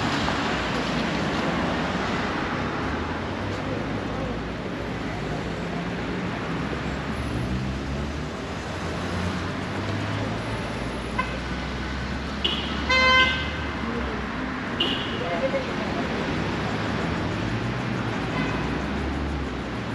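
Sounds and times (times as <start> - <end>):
road traffic rumble: 0.0 - 19.9
car horn honking: 12.4 - 13.6, 14.8 - 15.2.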